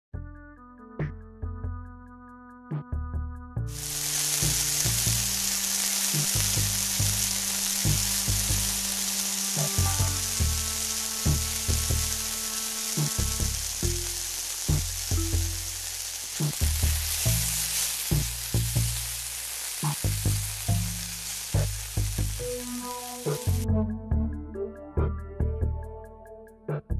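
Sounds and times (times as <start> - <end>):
background music with beat: 0.1 - 15.8, 19.8 - 26.9
onions sizzling in oil: 3.7 - 23.7.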